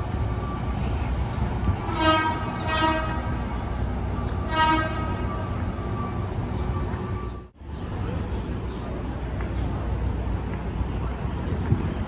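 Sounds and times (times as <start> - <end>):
city street traffic: 0.0 - 12.0
vehicle horn honking: 1.9 - 3.3, 4.5 - 5.2.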